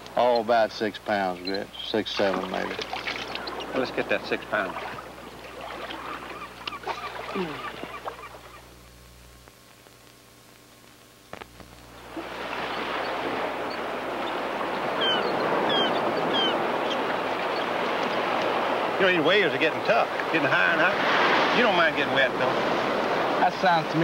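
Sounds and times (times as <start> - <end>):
bird calling high falling calls: 1.2 - 8.7, 12.6 - 18.3
surf washing onto beach: 2.0 - 6.4, 12.0 - 24.0.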